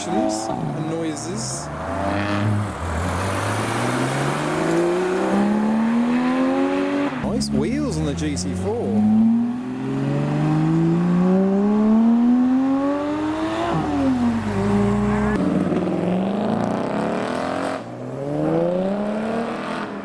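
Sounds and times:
car engine revving past: 0:00.0 - 0:07.3, 0:08.9 - 0:20.0
sports car accelerating hard: 0:01.7 - 0:20.0.

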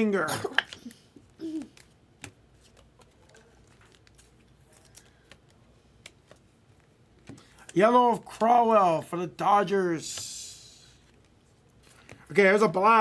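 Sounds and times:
cards being flipped by hand: 0:01.6 - 0:07.8, 0:10.9 - 0:12.3.

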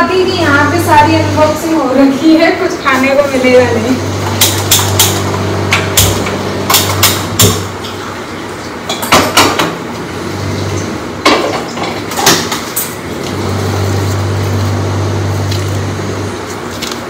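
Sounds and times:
steady low hum: 0:00.0 - 0:07.9.

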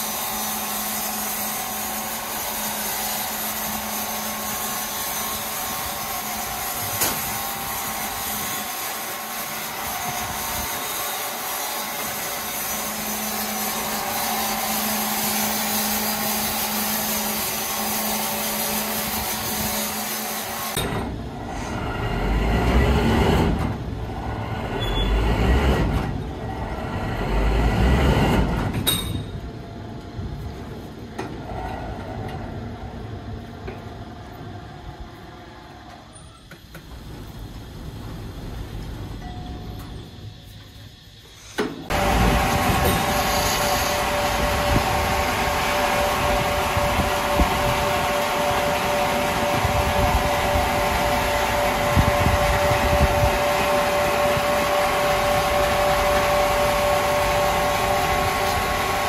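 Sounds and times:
wood-sawing machinery humming: 0:00.0 - 0:20.8, 0:41.9 - 0:59.0.

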